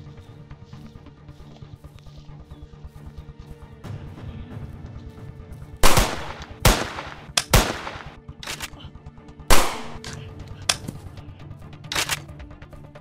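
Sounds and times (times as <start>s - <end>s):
sharp gunshot-like bangs: 5.8s - 8.2s, 9.5s - 10.1s.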